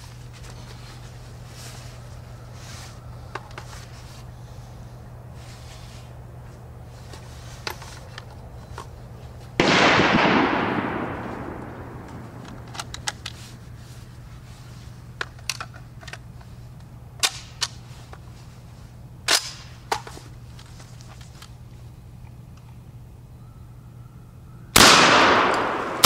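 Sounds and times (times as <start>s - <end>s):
shotgun blast: 9.6s - 12.5s, 24.8s - 26.0s.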